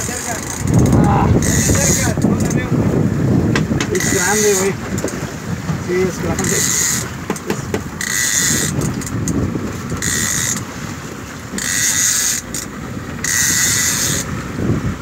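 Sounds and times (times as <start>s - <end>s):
fishing reel whirring: 0.0s - 2.6s, 4.0s - 4.8s, 6.4s - 7.1s, 8.0s - 10.7s, 11.6s - 14.3s
water noise: 0.0s - 15.0s
wind: 0.0s - 15.0s.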